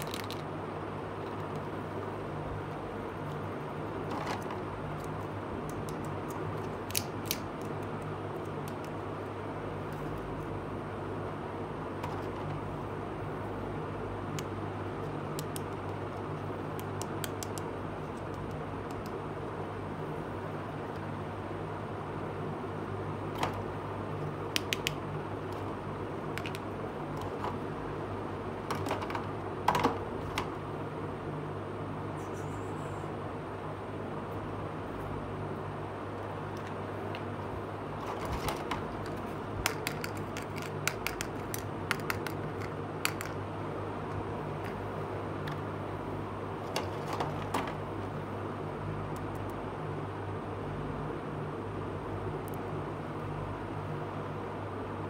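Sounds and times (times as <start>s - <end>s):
low background hum and hiss: 0.0s - 55.0s
plastic toy pieces clicking: 38.3s - 43.4s.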